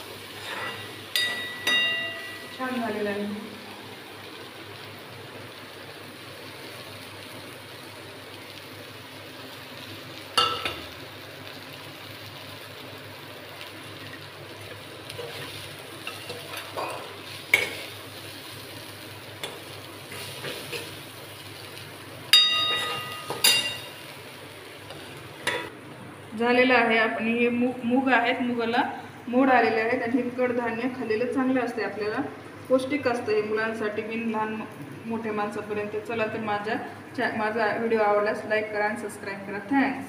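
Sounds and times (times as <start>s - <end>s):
food sizzling in a pan: 0.0s - 40.0s
spoon stirring and scraping pan: 0.2s - 2.5s, 14.6s - 18.0s, 19.4s - 21.1s
metal spoon clanking on pan: 0.4s - 2.6s, 10.4s - 10.9s, 16.0s - 17.9s, 22.4s - 24.0s, 24.9s - 25.7s.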